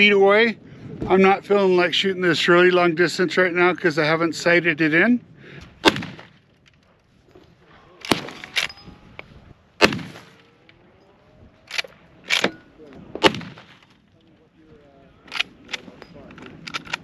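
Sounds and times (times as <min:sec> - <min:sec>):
rifle shots: 0:05.8 - 0:06.4, 0:08.0 - 0:08.7, 0:09.8 - 0:10.6, 0:11.7 - 0:14.0
rifle lever clacks: 0:15.3 - 0:17.0.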